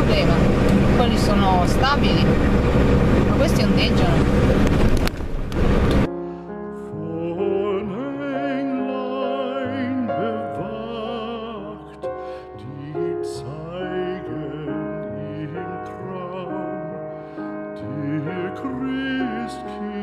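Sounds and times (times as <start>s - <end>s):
truck cab noise while driving: 0.0s - 6.1s
person singing with vibrato: 6.8s - 20.0s.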